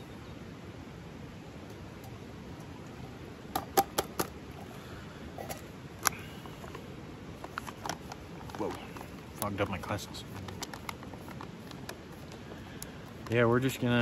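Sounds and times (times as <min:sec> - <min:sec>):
steady hiss: 0:00.0 - 0:14.0
camp cooking gear clicking: 0:03.5 - 0:04.4, 0:05.4 - 0:06.8, 0:07.4 - 0:13.8.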